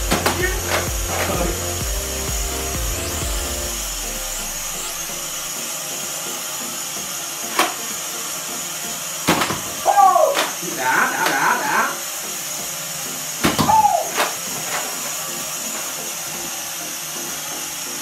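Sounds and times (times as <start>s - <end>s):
toy quadcopter propellers buzzing: 0.0s - 18.0s
toy blaster shots: 7.5s - 8.0s, 9.2s - 12.0s, 13.3s - 15.2s.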